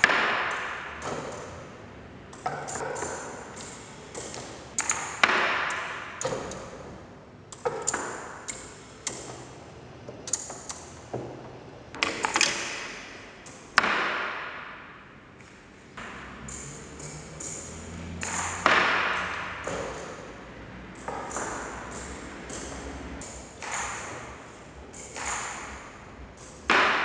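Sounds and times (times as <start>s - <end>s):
automaton mechanism clicking and knocking: 2.3s - 6.8s, 16.0s - 27.0s.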